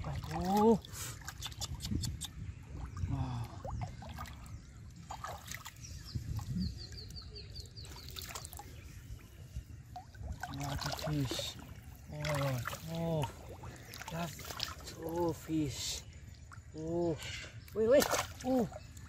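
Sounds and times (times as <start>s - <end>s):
bird chirping: 0.4s - 19.0s
water trickling: 2.5s - 19.0s
hands splashing in water: 17.9s - 18.8s.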